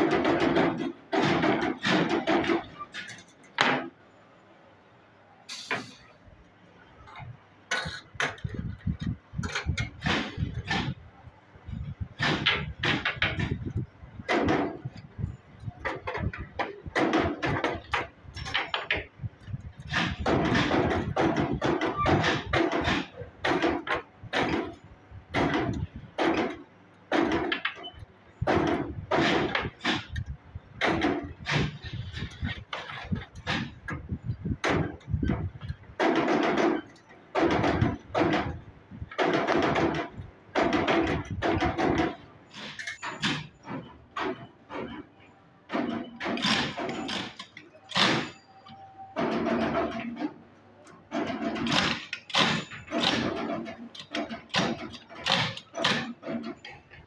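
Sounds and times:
steel wire rods clinking: 5.5 - 6.2, 42.5 - 43.7.

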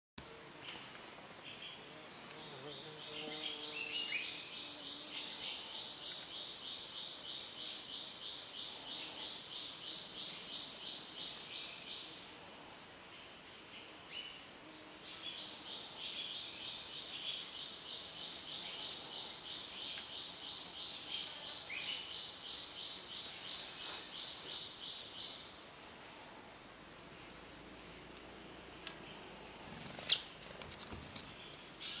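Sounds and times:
insect buzzing drone: 0.2 - 32.0
insect pulsing trill: 13.1 - 32.0.

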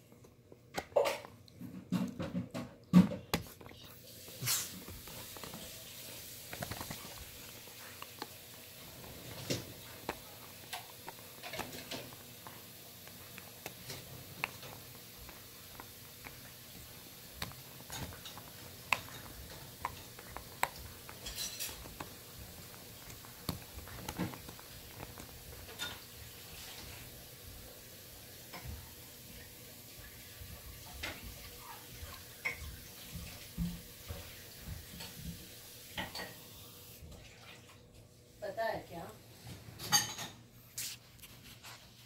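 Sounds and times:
dog gnawing a hard bone: 0.2 - 27.6.

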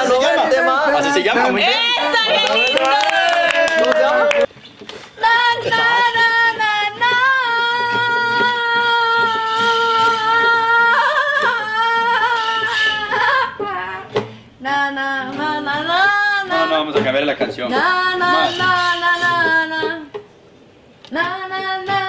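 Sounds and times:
woman singing without words: 5.2 - 16.7, 17.7 - 20.2, 21.1 - 22.0.

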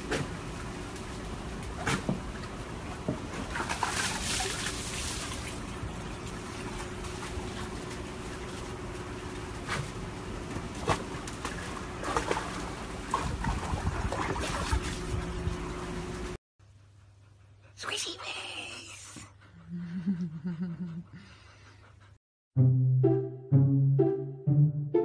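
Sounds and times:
water splashing in plastic tub: 0.0 - 8.8, 10.4 - 15.0.

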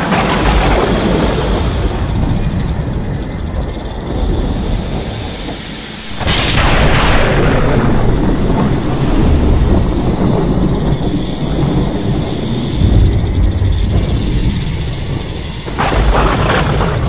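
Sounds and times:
rolling thunder rumble: 0.0 - 17.0
sharp thunder crack: 6.0 - 17.0.

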